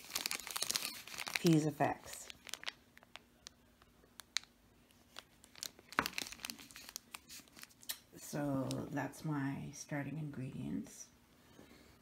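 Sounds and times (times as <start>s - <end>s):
plastic bags crinkling: 0.0s - 3.6s, 4.2s - 8.0s.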